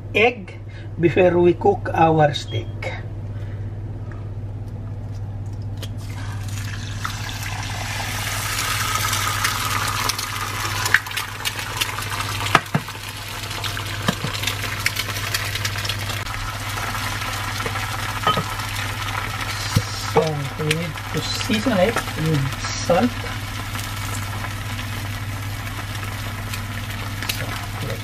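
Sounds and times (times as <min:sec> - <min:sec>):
low hum: 0:00.0 - 0:12.3
oil popping: 0:05.1 - 0:22.6, 0:23.2 - 0:28.0
eggs sizzling in oil: 0:05.9 - 0:28.0.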